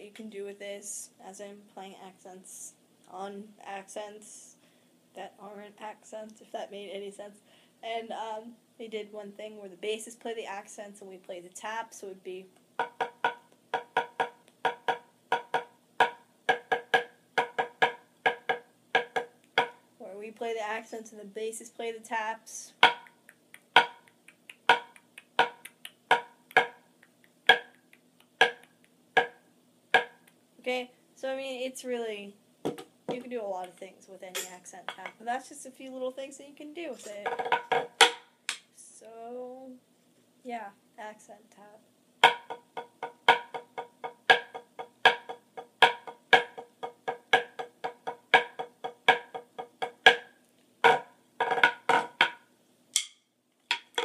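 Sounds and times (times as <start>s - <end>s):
drumsticks striking practice pad: 12.8s - 19.8s, 22.8s - 26.8s, 27.5s - 29.4s, 30.0s - 30.2s, 37.2s - 38.6s, 42.2s - 54.0s
faint stick taps: 12.8s - 19.8s, 22.8s - 29.4s, 30.0s - 30.4s, 42.2s - 52.4s.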